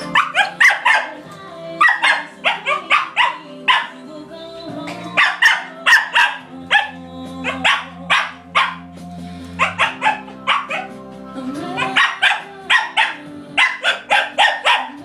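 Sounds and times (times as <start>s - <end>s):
small dog barking: 0.0s - 1.2s, 1.8s - 4.0s, 5.2s - 8.9s, 9.6s - 10.9s, 11.8s - 15.0s
background music: 0.0s - 15.0s.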